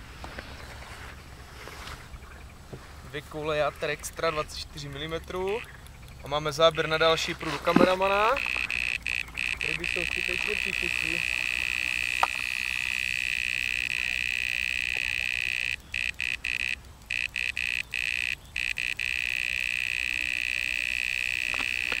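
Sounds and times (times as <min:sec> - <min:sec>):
electronic bite alarm tone: 0:08.2 - 0:22.0.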